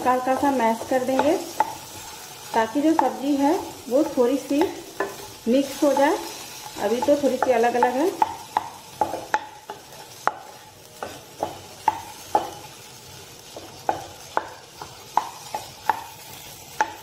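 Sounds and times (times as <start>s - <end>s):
potatoes sizzling: 0.0s - 17.0s
metal spatula knocking on frying pan: 0.2s - 3.4s, 6.8s - 12.7s, 13.5s - 16.2s, 16.8s - 17.0s.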